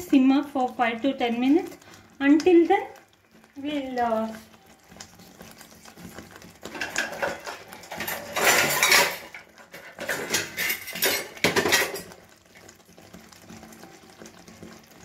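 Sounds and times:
kitchen utensils clattering: 0:06.6 - 0:12.2.

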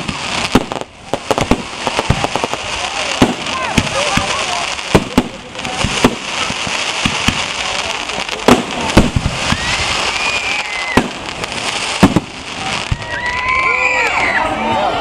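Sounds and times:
fireworks bangs: 0:00.0 - 0:14.6
fireworks crackling: 0:00.0 - 0:15.0
high held whistle: 0:09.4 - 0:11.0.

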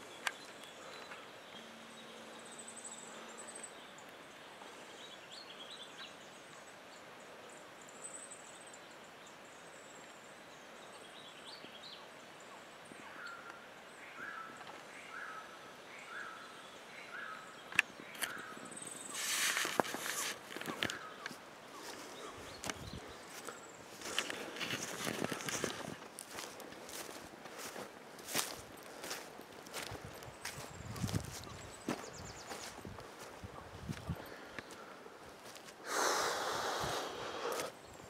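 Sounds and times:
light wind: 0:00.0 - 0:38.0
small birds chirping: 0:00.0 - 0:38.0
rustling: 0:19.0 - 0:21.4, 0:24.0 - 0:30.0.

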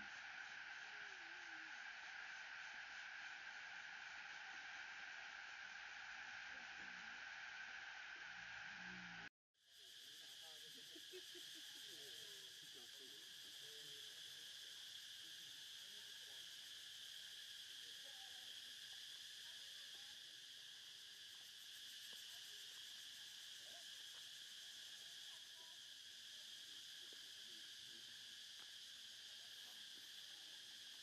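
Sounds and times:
high-pitched insect drone: 0:00.0 - 0:31.0.

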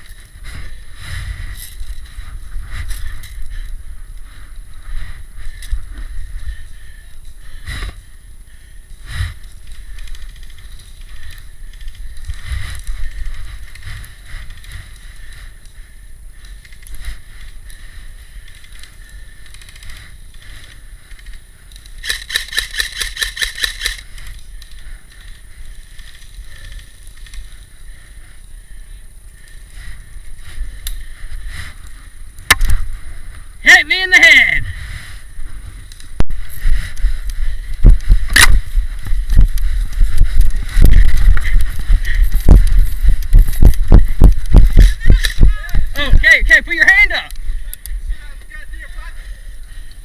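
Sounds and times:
wind on microphone: 0:34.6 - 0:46.0.

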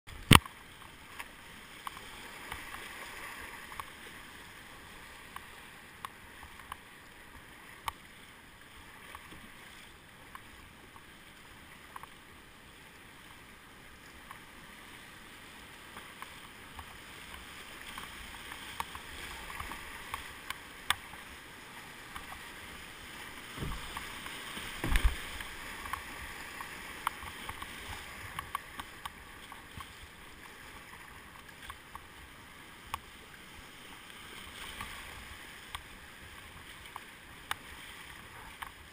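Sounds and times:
paddle strokes and splashes: 0:00.1 - 0:38.9
river water rushing over rapids: 0:00.1 - 0:38.9
low thumps: 0:23.6 - 0:24.0, 0:24.8 - 0:25.5.

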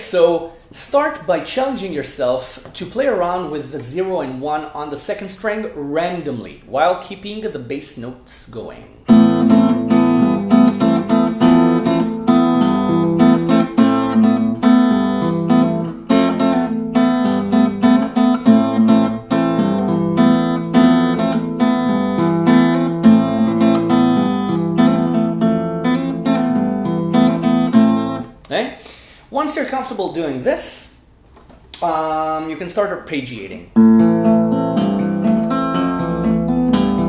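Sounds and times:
fingerstyle acoustic guitar: 0:09.0 - 0:28.3, 0:33.8 - 0:37.0.

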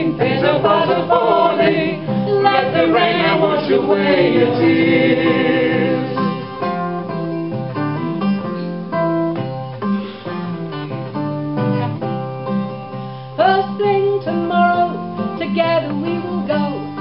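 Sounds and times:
person singing: 0:00.0 - 0:06.8, 0:13.4 - 0:17.0
acoustic guitar picking melody: 0:00.0 - 0:17.0.

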